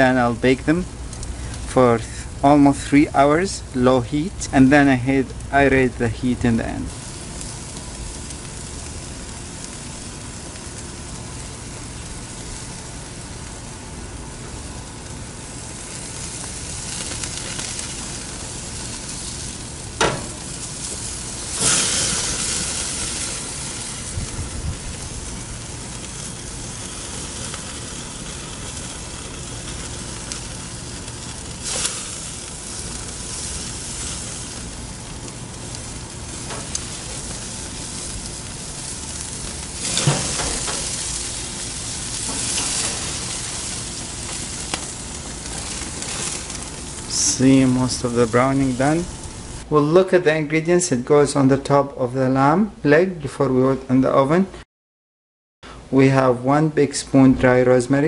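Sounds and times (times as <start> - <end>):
food sizzling: 6.7 - 49.7.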